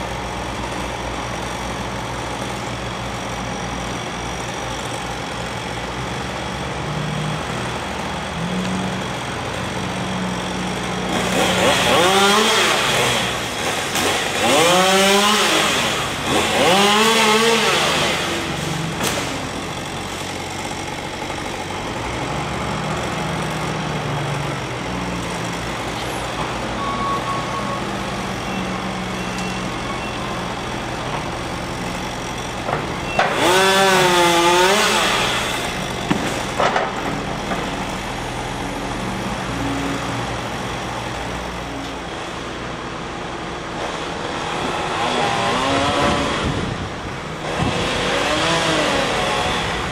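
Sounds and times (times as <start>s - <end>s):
chainsaw revving: 6.8s - 25.9s, 33.2s - 37.2s, 43.9s - 46.7s, 47.4s - 49.9s.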